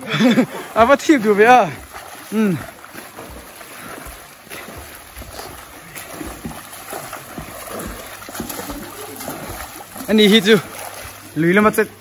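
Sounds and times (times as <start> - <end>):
swimmer splashing in pool: 0.0 - 12.0.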